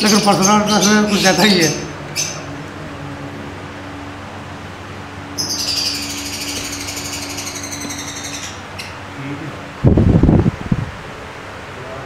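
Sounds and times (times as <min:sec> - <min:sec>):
lovebird chattering: 0:00.0 - 0:02.5, 0:05.3 - 0:09.2.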